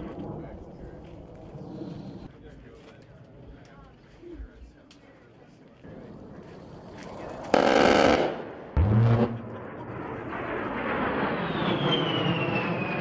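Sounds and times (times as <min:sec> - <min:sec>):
jet engine whine: 0:05.9 - 0:13.0.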